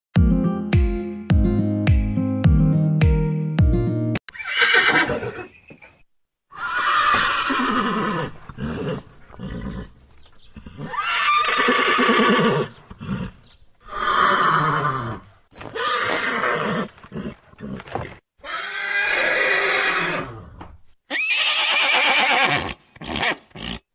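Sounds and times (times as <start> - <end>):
horse neighing: 4.3 - 5.6, 6.5 - 10.0, 10.6 - 23.8.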